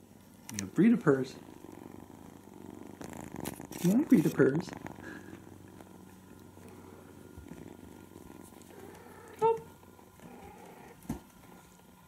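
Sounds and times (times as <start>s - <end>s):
kitten purring: 0.0s - 12.0s.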